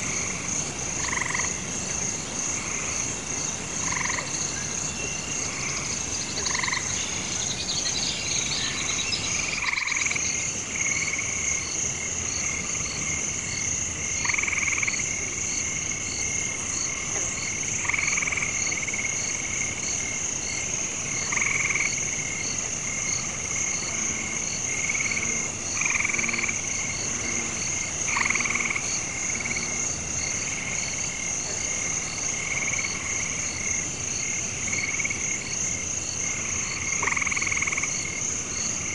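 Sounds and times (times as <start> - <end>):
frogs croaking: 0.0 - 38.9
high-pitched insect trill: 0.1 - 16.9.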